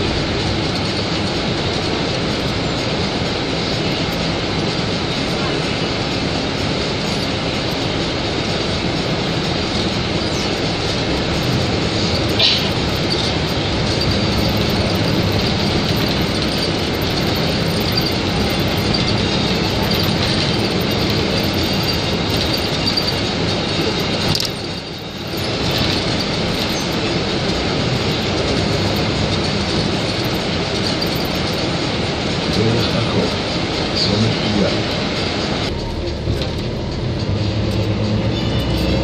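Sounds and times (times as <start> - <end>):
bus engine and road noise: 0.0 - 39.0.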